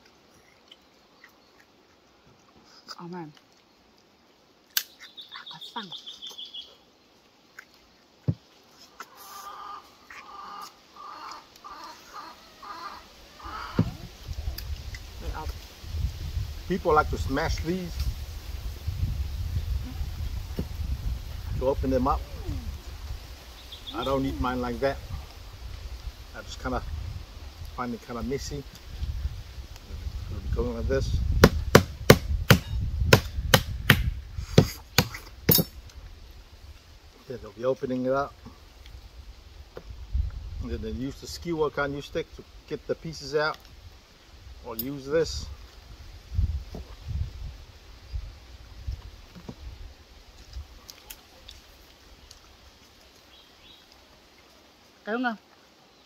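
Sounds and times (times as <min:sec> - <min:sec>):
bird calling: 0:04.8 - 0:06.9, 0:08.8 - 0:14.2, 0:22.1 - 0:24.7
hard knocks on crab shell: 0:31.4 - 0:35.7.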